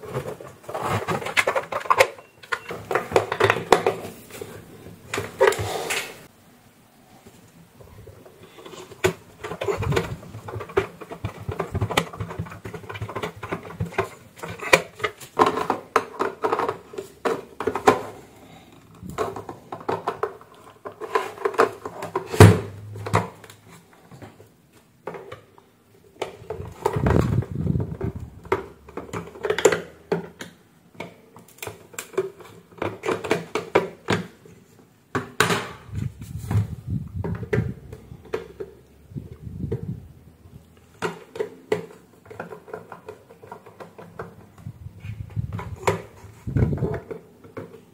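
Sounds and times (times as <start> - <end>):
plastic clicks and rattles: 8.4 - 22.3, 26.2 - 34.4, 40.6 - 47.9.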